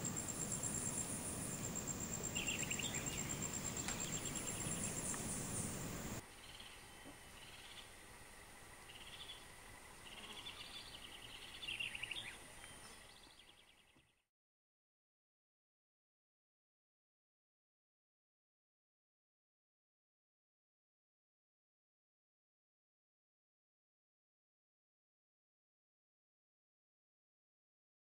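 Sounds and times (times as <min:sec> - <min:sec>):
short chirping calls: 0:00.0 - 0:06.8
insects trilling: 0:00.0 - 0:13.4.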